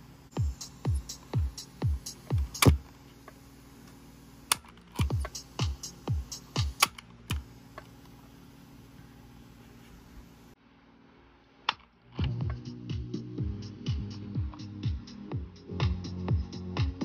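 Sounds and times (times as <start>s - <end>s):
music from cassette tape: 0.0s - 8.4s, 11.7s - 17.0s
thudding kick drum: 0.4s - 2.9s.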